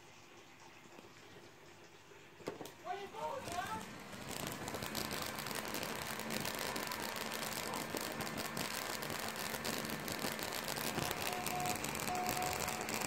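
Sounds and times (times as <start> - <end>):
electric arc buzzing and crackling: 3.2 - 13.0.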